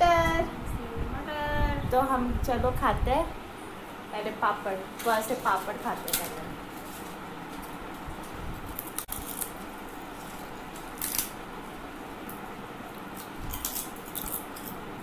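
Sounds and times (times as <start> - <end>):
crisp wafer being chewed: 8.6 - 11.4, 12.2 - 14.8.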